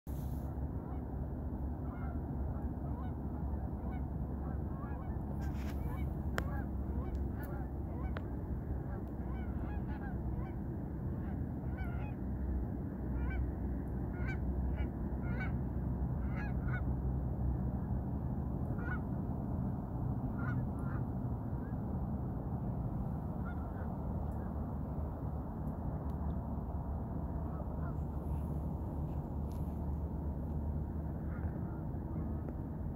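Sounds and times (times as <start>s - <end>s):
steady low rumble: 0.1s - 32.9s
flock of birds calling: 4.8s - 8.2s, 8.8s - 10.6s.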